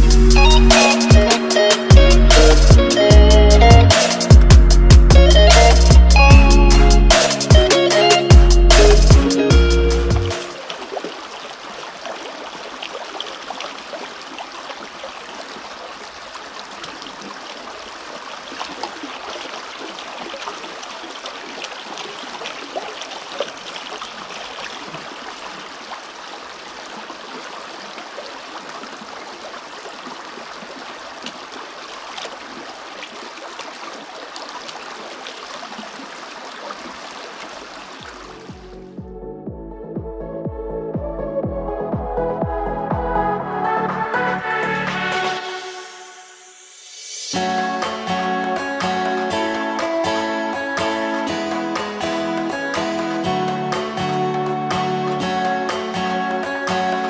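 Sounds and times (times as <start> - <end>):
creek water running: 6.7 - 39.0, 44.5 - 57.0
water swishing in a plastic pan: 10.5 - 38.4.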